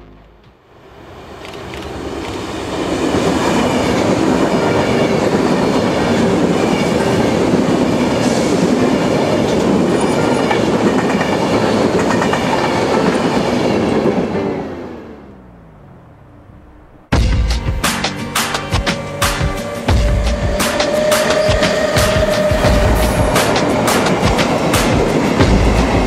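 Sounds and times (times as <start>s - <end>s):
electric train passing at speed: 0.4s - 26.0s
train wheels clattering over rail joints: 20.3s - 26.0s.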